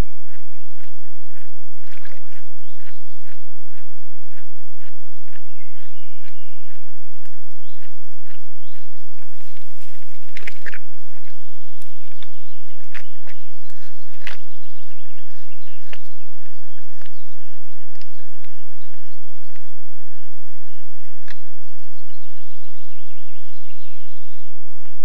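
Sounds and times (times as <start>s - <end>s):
moose drinking and licking: 0.3s - 19.0s.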